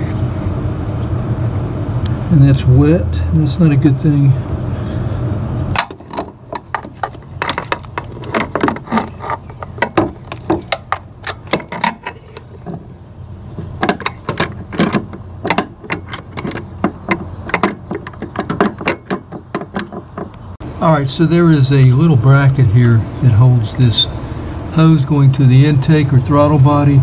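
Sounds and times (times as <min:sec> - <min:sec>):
low steady hum: 0:00.0 - 0:27.0
tools clicking and clinking: 0:05.8 - 0:13.0, 0:13.6 - 0:20.4.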